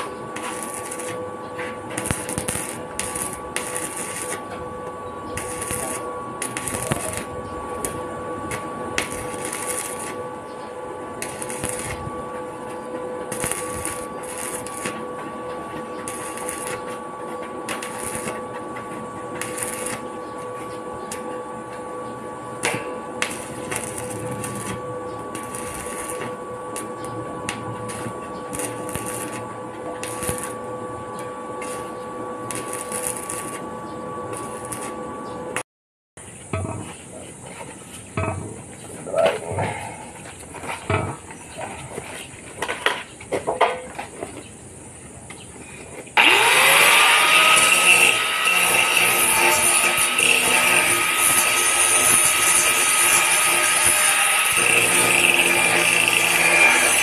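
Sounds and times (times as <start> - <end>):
steady high hum: 0.0 - 35.6
welding arc crackling: 0.0 - 35.6, 46.2 - 57.0.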